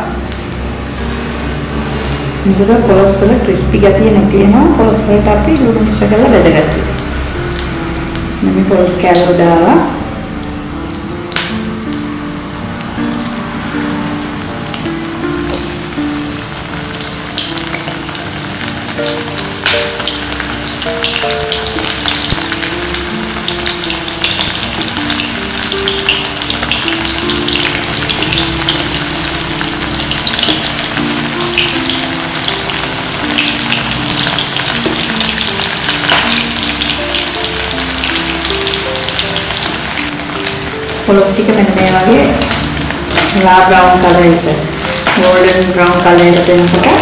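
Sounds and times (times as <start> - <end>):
background music melody: 0.0 - 47.0
food deep-frying in sizzling oil: 0.1 - 47.0.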